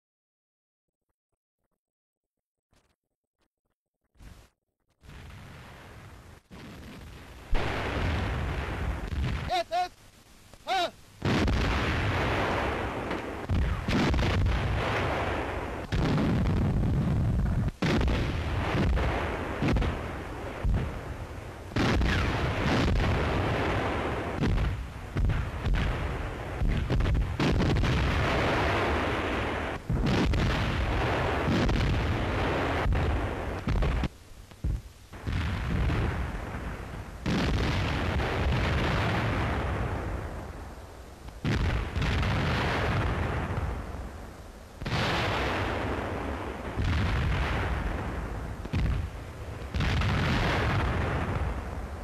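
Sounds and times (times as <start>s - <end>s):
artillery guns firing: 6.5s - 9.8s, 11.2s - 40.6s, 41.4s - 44.0s, 44.8s - 51.9s
shells exploding: 6.5s - 9.9s, 11.2s - 34.2s, 35.2s - 40.6s, 41.4s - 44.0s, 44.8s - 51.8s.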